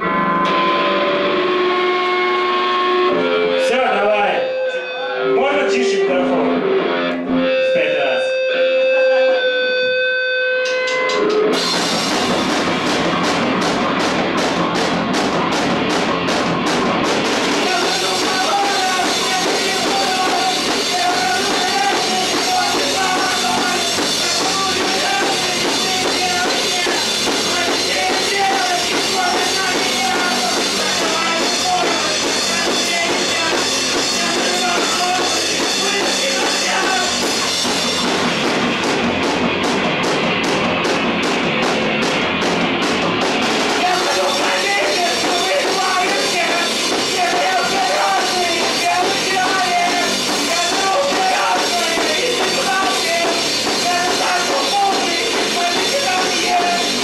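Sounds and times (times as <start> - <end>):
electric guitar held notes: 0.0 - 12.5
rock band playing live: 0.0 - 57.0
drum kit sharp hits: 10.7 - 57.0.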